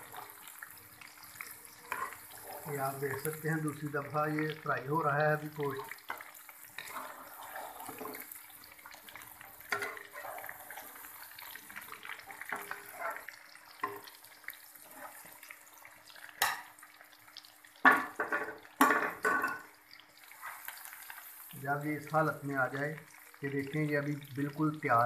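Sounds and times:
chicken deep-frying in oil: 0.0s - 25.0s
metal spoon scraping pan: 1.9s - 3.4s, 6.8s - 8.4s, 9.7s - 11.0s.

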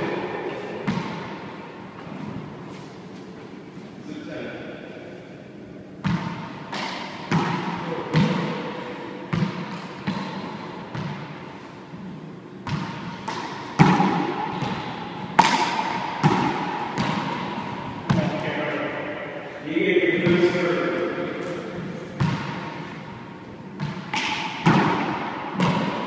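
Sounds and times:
rubber ball hitting walls and floor: 12.6s - 18.5s, 23.8s - 26.0s.

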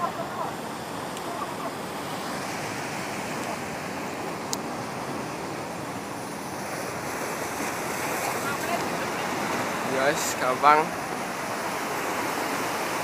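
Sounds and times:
waves breaking against rocks: 0.0s - 13.0s.

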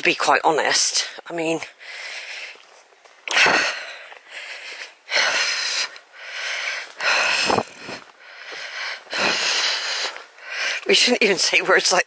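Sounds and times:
heavy wheezy breathing: 1.7s - 2.7s, 3.3s - 10.9s.

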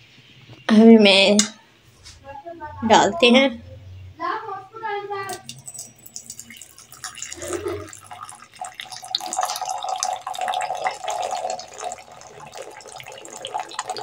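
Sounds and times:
tea pouring into mug: 5.3s - 14.0s.

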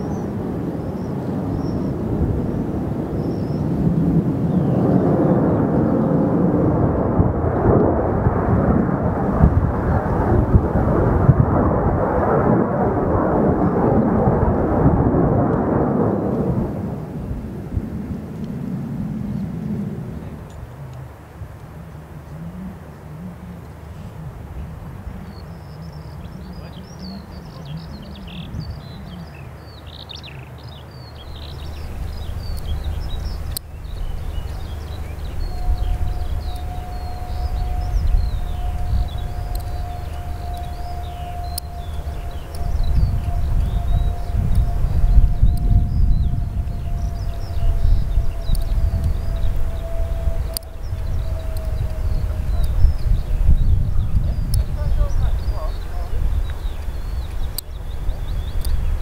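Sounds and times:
fighter jet rumbling: 0.0s - 25.2s, 31.0s - 59.0s
small birds chirping: 3.0s - 6.4s, 25.1s - 59.0s.

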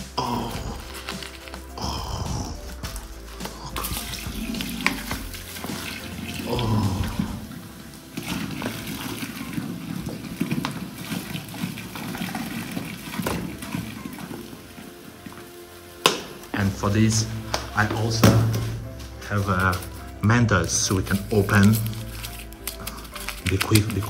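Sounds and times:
soda pouring and splashing: 0.0s - 24.0s.

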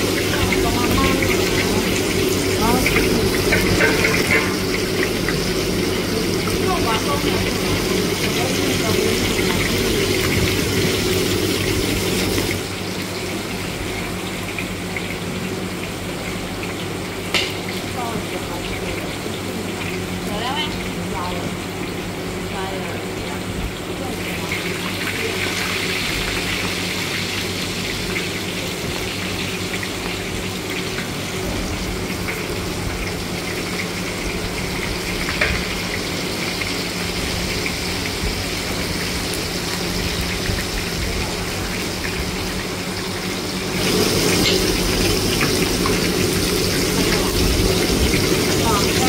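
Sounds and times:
food deep-frying in oil: 0.0s - 49.0s.

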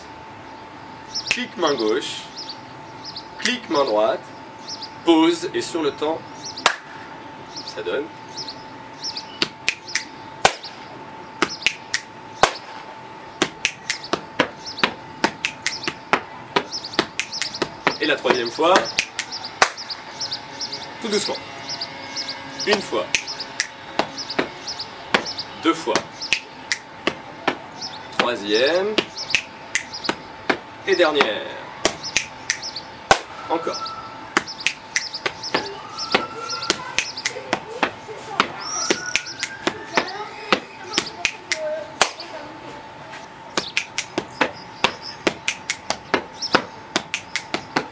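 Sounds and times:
small birds chirping: 0.0s - 47.9s
finger snaps: 1.3s - 1.5s, 6.6s - 6.9s, 9.4s - 10.7s, 11.4s - 12.7s, 13.4s - 14.3s, 15.3s - 16.0s, 17.0s - 17.7s, 18.8s - 19.8s, 23.1s - 23.8s, 26.2s - 26.9s, 29.1s - 30.2s, 31.9s - 33.3s, 34.4s - 36.3s, 37.0s - 37.4s, 38.8s - 40.1s, 41.0s - 42.2s, 43.6s - 46.0s, 47.0s - 47.9s
hands slapping chest: 6.6s - 6.9s, 9.4s - 10.7s, 11.4s - 12.7s, 13.4s - 18.0s, 26.0s - 27.6s, 29.0s - 30.6s, 31.2s - 33.3s, 34.4s - 40.1s, 41.0s - 42.2s, 43.6s - 47.9s.

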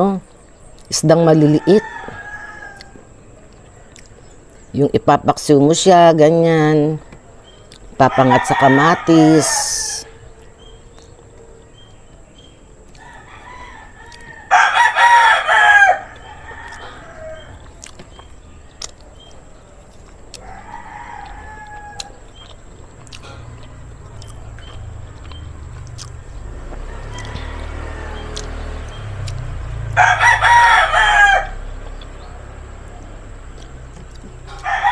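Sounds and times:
rooster crowing: 1.3s - 3.1s, 8.0s - 10.4s, 13.0s - 17.9s, 20.3s - 22.4s, 23.2s - 33.4s, 34.4s - 34.9s.

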